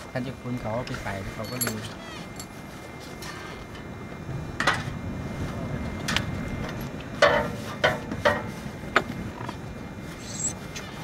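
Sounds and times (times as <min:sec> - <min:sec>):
metal tools clanking: 0:01.3 - 0:02.6.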